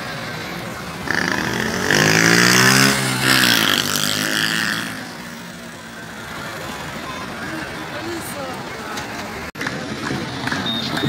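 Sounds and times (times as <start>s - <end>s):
vehicle engine passing by: 0.9s - 6.6s.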